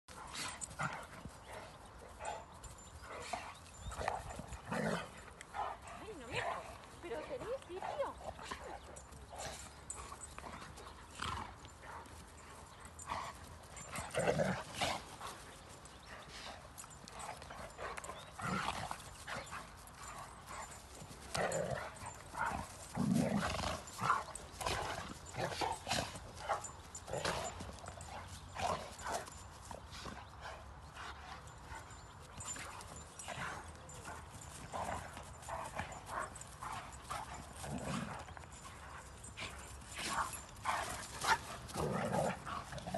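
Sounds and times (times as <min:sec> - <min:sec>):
paws thudding on turf: 0:00.1 - 0:42.9
dogs scuffling: 0:31.6 - 0:42.9.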